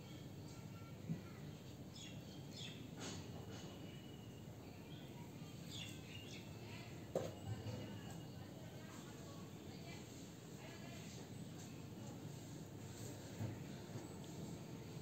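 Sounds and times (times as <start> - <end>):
small birds chirping: 1.9 - 7.6.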